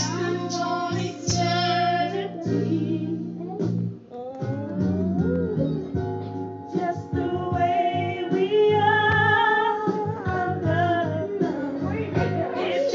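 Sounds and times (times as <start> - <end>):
woman singing: 0.0 - 3.6, 6.7 - 12.9.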